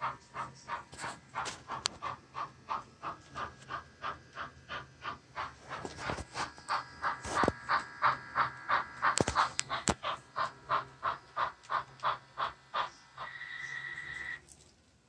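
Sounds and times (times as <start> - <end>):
model steam locomotive chuffs: 0.0 - 14.5
sharp clicks: 6.6 - 13.3.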